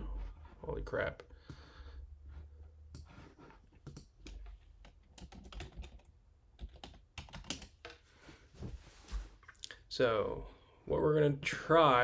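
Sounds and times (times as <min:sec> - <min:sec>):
computer keyboard typing: 0:03.8 - 0:07.9.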